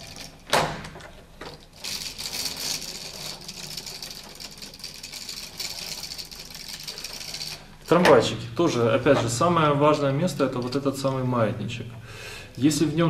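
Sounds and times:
wooden gears clattering: 0.0s - 8.3s, 10.3s - 11.3s.

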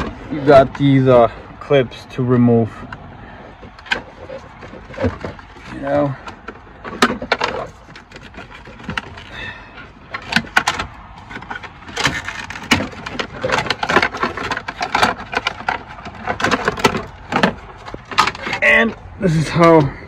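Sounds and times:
plastic panel clips clicking and rattling: 3.6s - 9.3s, 10.1s - 18.6s.

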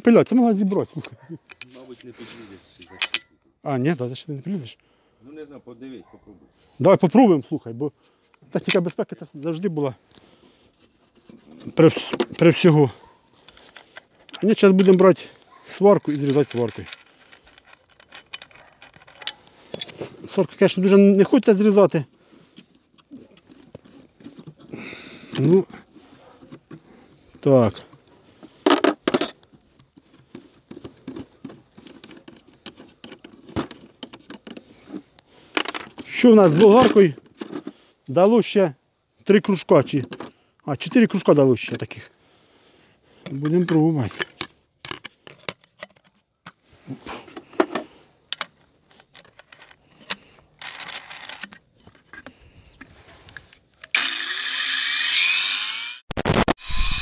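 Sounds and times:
handling clicks and knocks: 0.5s - 2.1s, 2.8s - 3.4s, 11.1s - 21.1s, 22.5s - 37.8s, 39.3s - 42.0s, 43.2s - 46.6s, 47.3s - 53.9s
metallic clinks: 16.1s - 20.0s
angle grinder whining: 53.9s - 57.0s.

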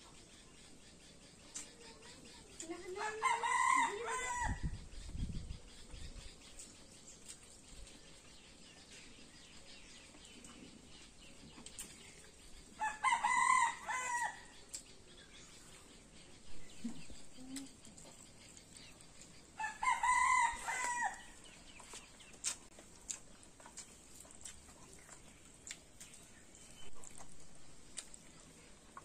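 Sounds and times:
rooster crowing: 3.0s - 4.6s, 12.8s - 14.4s, 19.6s - 21.3s.

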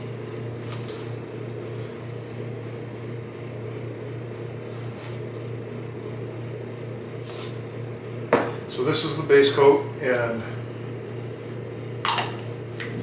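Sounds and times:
machine humming: 0.0s - 13.0s.

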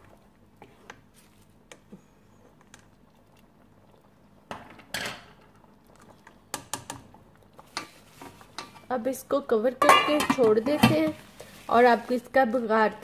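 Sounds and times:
ladle stirring lentils in pot: 5.3s - 9.1s.

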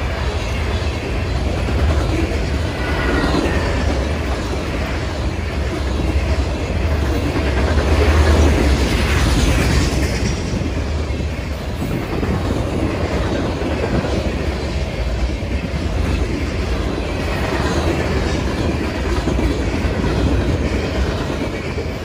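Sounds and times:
freight train wheels rumbling on rails: 0.0s - 22.0s.

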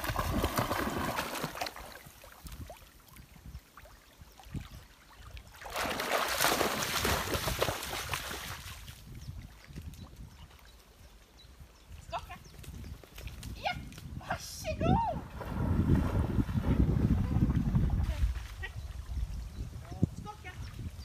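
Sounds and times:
dog splashing through water: 0.0s - 2.1s, 5.6s - 8.8s.

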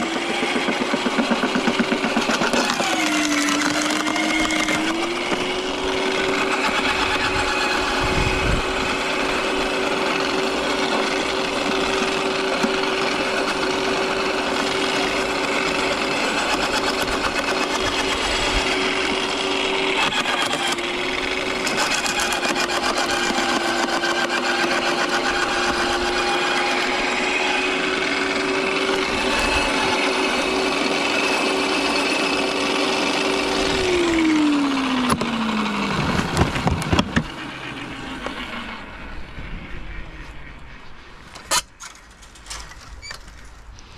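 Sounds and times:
wood crunching and rattling: 0.0s - 7.7s, 10.2s - 27.4s, 35.0s - 37.4s, 41.3s - 43.9s
garden shredder motor hum: 0.0s - 39.4s.

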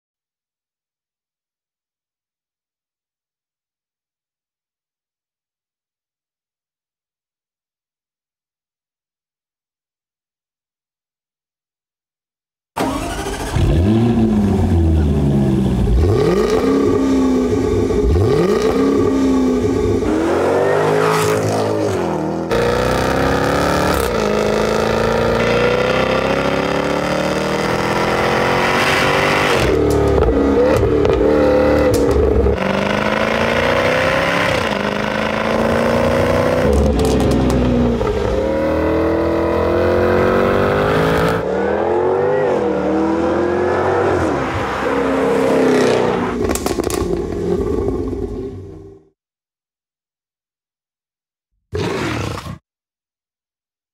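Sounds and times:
car accelerating through gears: 12.8s - 48.7s
car engine revving: 12.8s - 49.0s.

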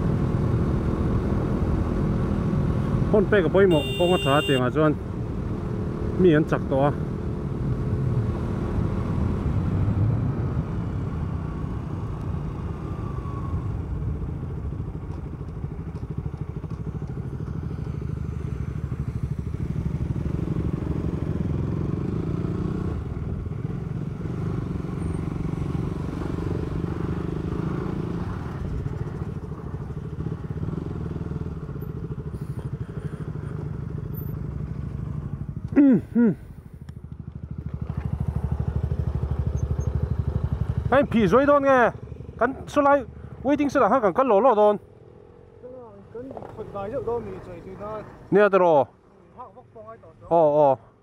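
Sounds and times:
motorcycle engine running: 3.1s - 4.6s, 14.0s - 43.8s.

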